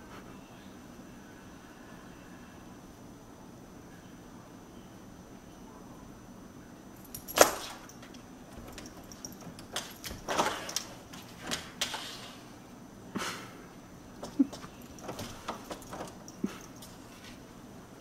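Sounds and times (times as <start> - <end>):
door and knob rattling: 7.1 - 11.9, 14.2 - 17.0
cat knocking against door: 14.2 - 16.3.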